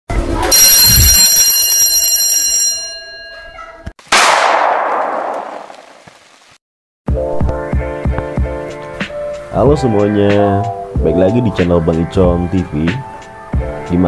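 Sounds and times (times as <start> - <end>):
bright ringing tone: 0.5 - 3.8.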